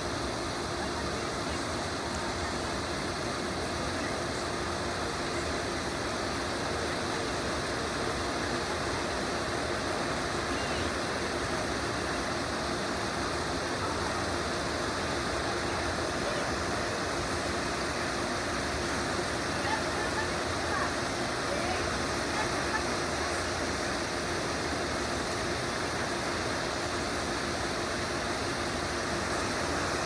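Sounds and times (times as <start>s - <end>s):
faint steady hum: 0.0s - 30.0s
running water rushing: 0.0s - 30.0s.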